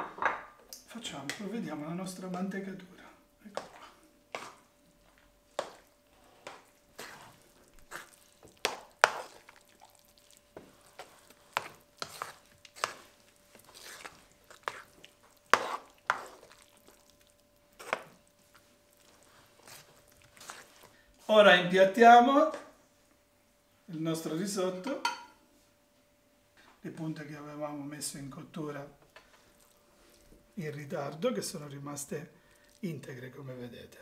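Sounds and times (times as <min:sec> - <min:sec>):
faint steady hum: 0:00.0 - 0:34.0
metal spoon scraping frying pan: 0:11.0 - 0:13.1, 0:15.5 - 0:16.4.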